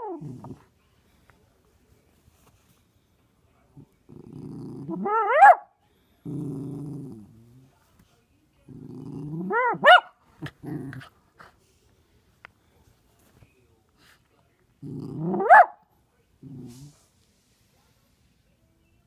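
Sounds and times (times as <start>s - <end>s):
puppy play-growling: 0.0s - 0.8s, 3.7s - 5.3s, 6.2s - 7.7s, 8.6s - 11.5s, 14.7s - 15.5s, 16.4s - 17.0s
puppy high-pitched barks: 5.0s - 5.7s, 9.5s - 10.2s, 15.3s - 15.8s.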